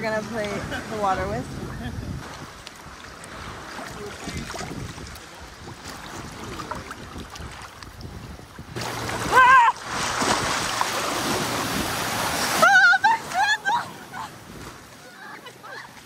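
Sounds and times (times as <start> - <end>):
water lapping and sloshing: 0.0 - 16.0
wave crashing: 8.7 - 15.0
person yelling: 9.3 - 9.8.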